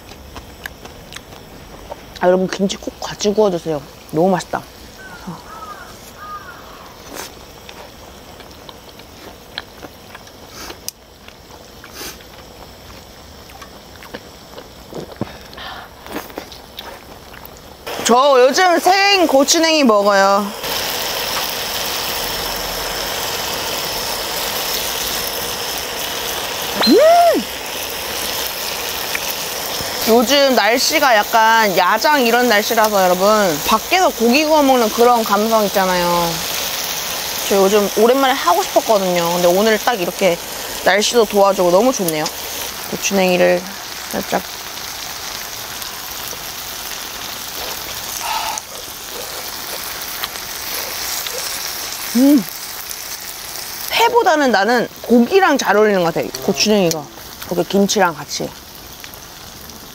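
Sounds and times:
meat sizzling on a grill: 0:00.0 - 0:59.9
person humming while chewing: 0:48.1 - 0:49.4.

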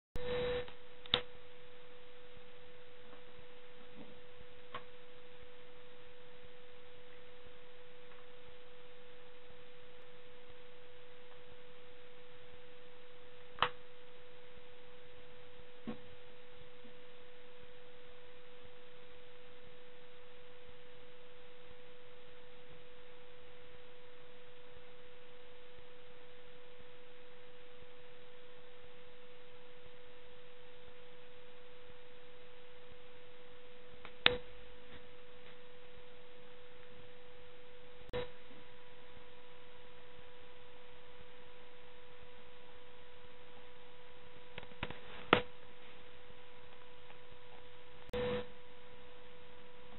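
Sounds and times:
faint high tone: 0:00.2 - 0:00.8
electronic hum tone: 0:00.2 - 0:49.9.

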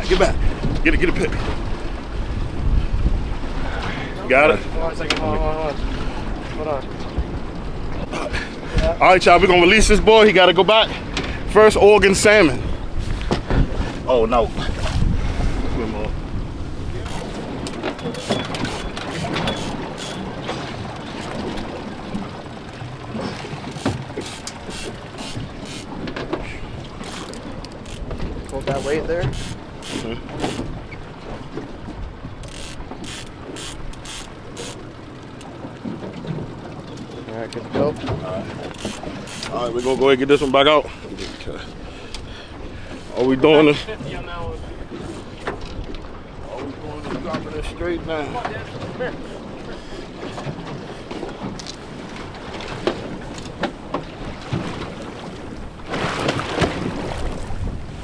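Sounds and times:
boat noise: 0:00.0 - 0:58.0
wind: 0:00.0 - 0:58.0
fishing gear knocking: 0:17.0 - 0:21.8, 0:23.0 - 0:30.9, 0:32.2 - 0:40.5
fishing reel clicking: 0:18.1 - 0:20.2, 0:27.0 - 0:30.7, 0:32.4 - 0:35.5, 0:38.7 - 0:40.0.

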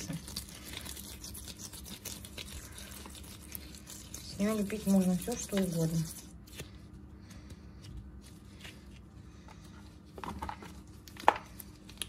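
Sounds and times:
rustling and clicks of paste: 0:05.4 - 0:12.0.

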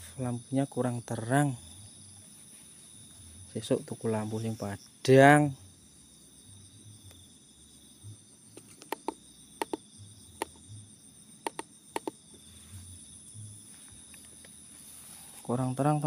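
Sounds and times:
crickets chirping: 0:00.0 - 0:16.0
sharp clicks: 0:08.6 - 0:09.8, 0:11.4 - 0:12.2.

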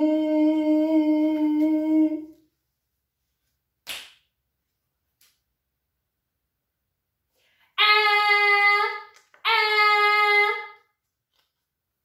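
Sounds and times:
woman humming: 0:00.0 - 0:02.4.

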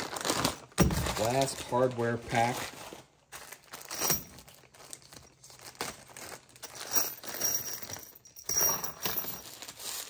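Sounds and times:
plastic bag crinkling and tearing: 0:00.0 - 0:06.9, 0:09.4 - 0:10.0.

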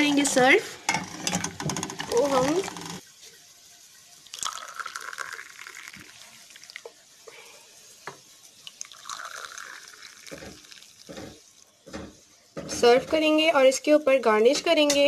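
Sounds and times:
tea pouring into glass cups: 0:04.2 - 0:06.9, 0:08.6 - 0:11.7.

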